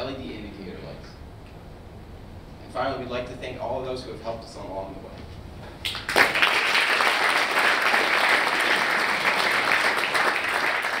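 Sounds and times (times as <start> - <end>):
audience applauding: 5.8 - 11.0.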